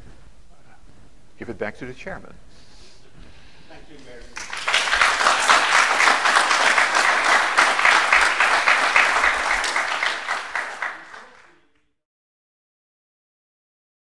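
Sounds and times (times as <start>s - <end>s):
audience applauding: 4.3s - 11.8s.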